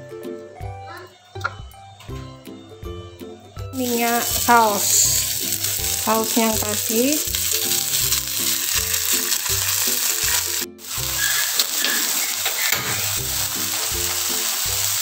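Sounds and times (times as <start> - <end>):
background music with a steady beat: 0.0 - 11.4
skewers sizzling on a grill pan: 3.8 - 15.0.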